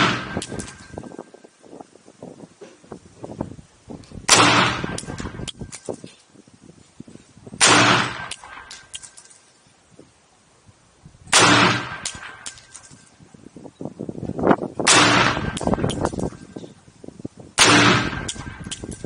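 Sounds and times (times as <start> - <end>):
rifle shots with echo: 0.0 - 0.8, 4.3 - 5.4, 7.6 - 9.0, 11.3 - 12.8, 14.9 - 16.0, 17.6 - 19.0.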